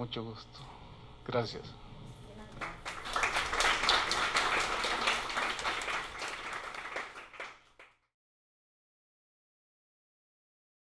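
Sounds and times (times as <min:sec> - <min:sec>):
small audience clapping: 0:02.5 - 0:08.1.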